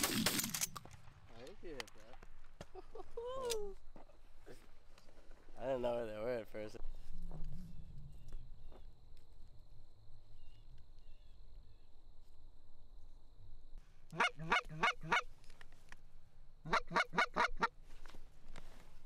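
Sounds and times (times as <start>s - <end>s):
goose honking: 14.2s - 15.3s, 16.7s - 17.7s.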